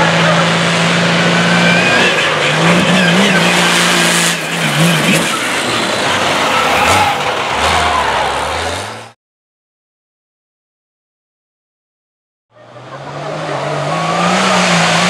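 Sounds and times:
tires churning dirt: 0.0 - 9.2, 12.5 - 15.0
truck engine revving: 0.0 - 9.2, 12.5 - 15.0.

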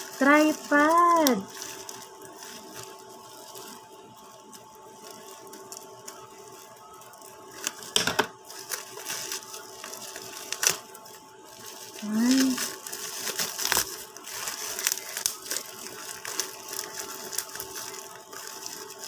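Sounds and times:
faint hum: 0.0 - 19.0
plastic bag rustling and crinkling: 0.0 - 19.0.

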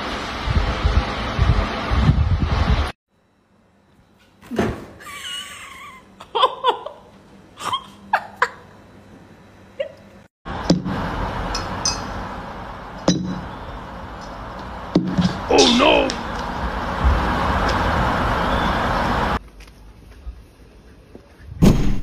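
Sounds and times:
steady rushing noise: 0.0 - 3.0, 10.5 - 19.4.

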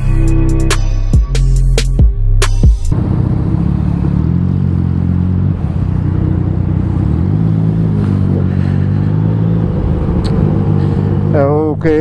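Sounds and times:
motorcycle engine running: 2.9 - 12.0.

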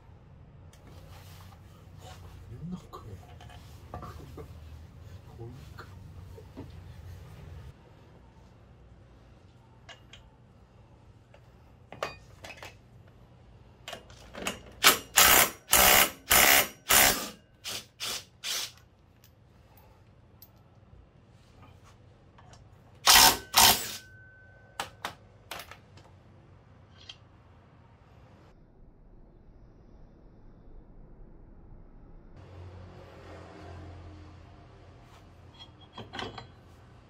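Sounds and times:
metallic clicks of tools: 26.9 - 27.3.

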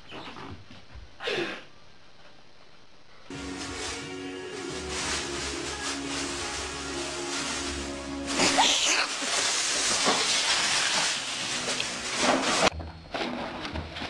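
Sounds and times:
background music: 3.3 - 8.9
loud even hissing: 3.3 - 12.7.

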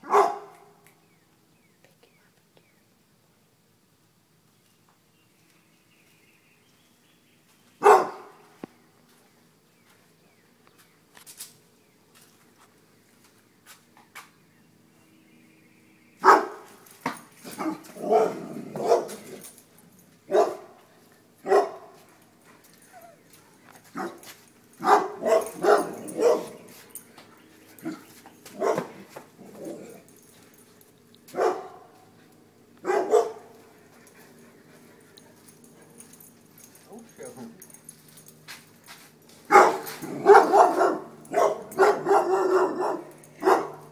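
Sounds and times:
dogs barking: 0.0 - 0.8, 7.8 - 8.4, 16.2 - 19.6, 20.2 - 20.8, 21.4 - 22.1, 22.8 - 27.0, 27.8 - 30.2, 31.3 - 32.2, 32.8 - 33.7, 39.4 - 43.9.

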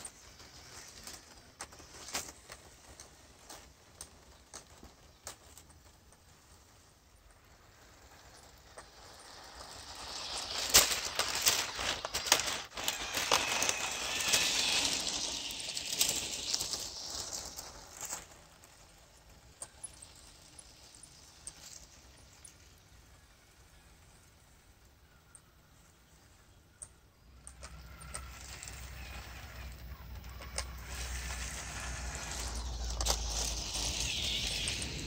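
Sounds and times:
plastic tracks and gears clattering: 0.0 - 35.0
faint clicks: 25.0 - 35.0.

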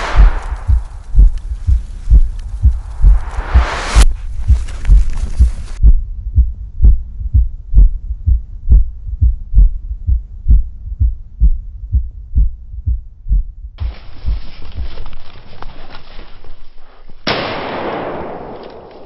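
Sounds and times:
background hiss: 0.0 - 5.8
faint steady hum: 0.0 - 15.1
heartbeat thumps: 0.0 - 15.2.

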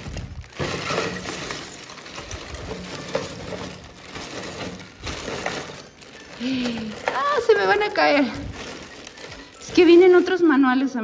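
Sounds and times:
plastic bag crinkling: 0.0 - 11.0
plastic bricks clicking in a bag: 0.0 - 11.0.

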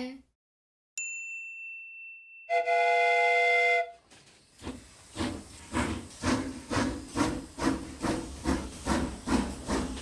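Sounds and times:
cartoon steam locomotive chuffing: 4.6 - 10.0.

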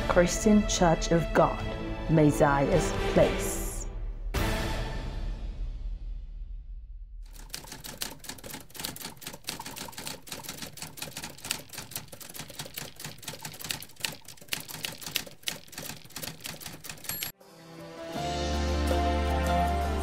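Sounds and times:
typewriter keys clacking: 7.3 - 17.4.

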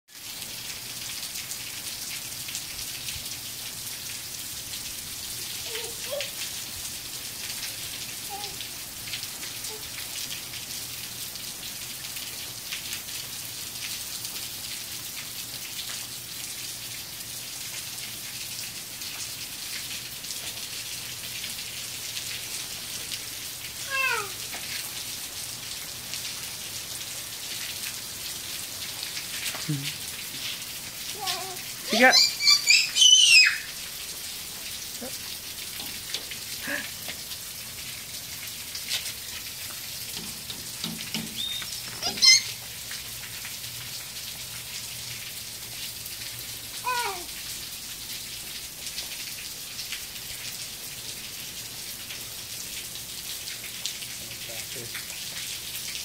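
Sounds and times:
rain on concrete patio: 0.1 - 56.0
high-pitched cries: 23.8 - 24.4, 31.2 - 33.8, 41.4 - 42.7, 46.8 - 47.3.

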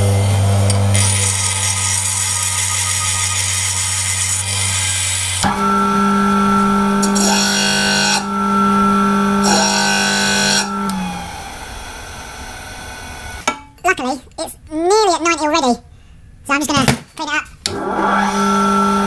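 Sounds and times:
bench grinder grinding steel: 0.0 - 13.4
sander winding down: 0.0 - 13.4, 17.7 - 19.0
steel rasping on sanding disc: 1.0 - 5.2
disc sander motor humming: 5.4 - 13.4.

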